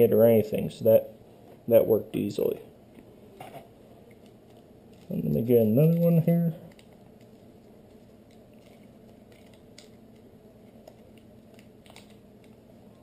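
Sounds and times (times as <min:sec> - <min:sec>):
low room hum: 0:00.0 - 0:13.0
plastic bag crinkling: 0:04.1 - 0:12.6.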